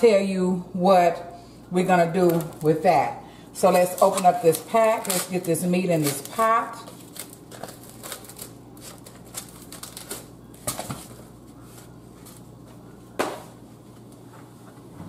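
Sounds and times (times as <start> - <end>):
plastic wrap crinkling and tearing: 2.2 - 2.7, 3.6 - 11.2.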